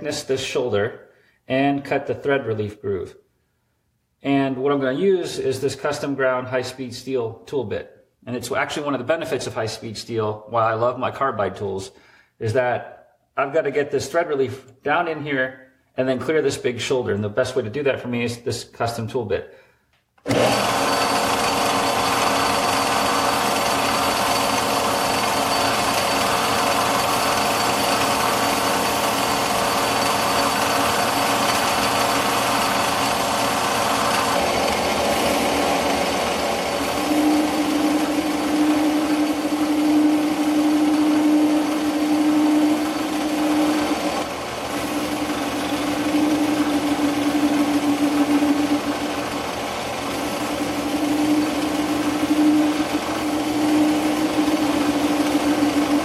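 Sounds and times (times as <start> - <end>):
metal lathe cutting steel: 20.3 - 56.0.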